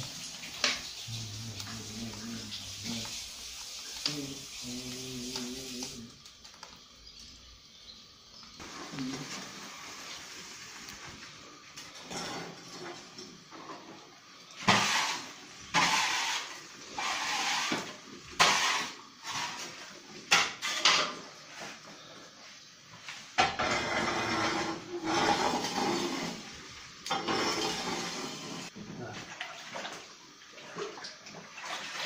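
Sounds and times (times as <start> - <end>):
metal rake scraping oven floor: 14.6 - 21.0, 23.4 - 28.7.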